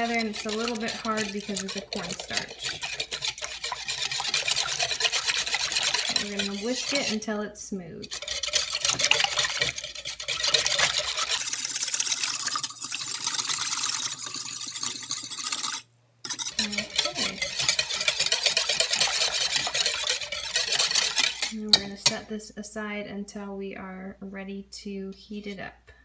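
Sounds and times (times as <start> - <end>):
whisk clicking against bowl: 0.0 - 7.3, 8.0 - 22.2
liquid sloshing: 0.0 - 7.4, 8.0 - 22.1.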